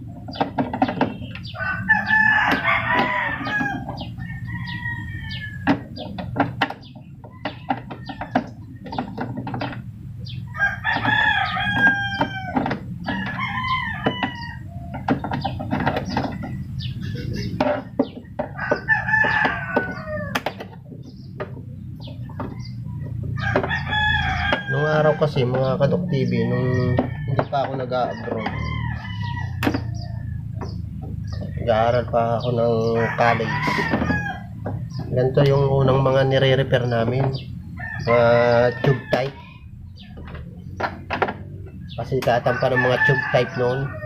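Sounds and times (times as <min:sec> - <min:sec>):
rooster crowing: 0:01.5 - 0:05.8, 0:10.5 - 0:14.9, 0:18.5 - 0:20.5, 0:23.4 - 0:30.4, 0:32.8 - 0:34.7, 0:37.8 - 0:39.5, 0:42.4 - 0:44.0.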